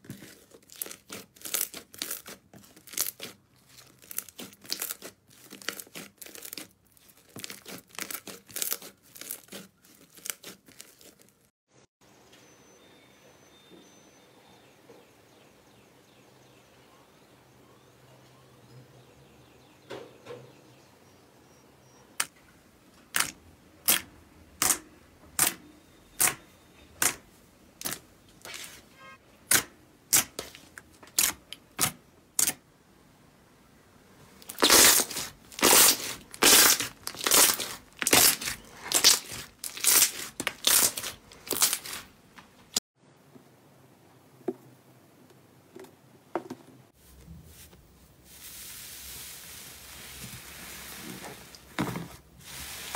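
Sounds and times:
slime popping: 34.5 - 42.0
faint handling sounds: 45.3 - 52.9.

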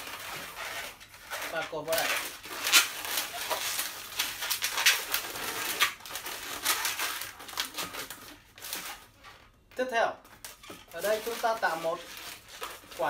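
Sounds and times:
balloons squeaking and rubbing: 0.0 - 9.6, 10.3 - 13.0.

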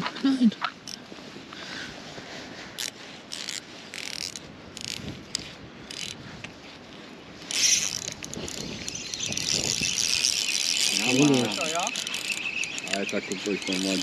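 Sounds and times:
fishing reel whirring: 2.8 - 6.2, 7.4 - 14.0.

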